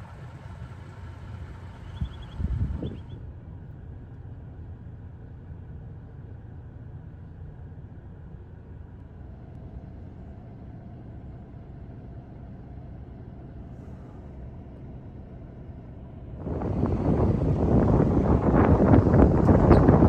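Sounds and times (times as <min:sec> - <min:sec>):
car cabin engine and tyre rumble: 0:00.0 - 0:20.0
gusty rushing noise: 0:16.4 - 0:20.0.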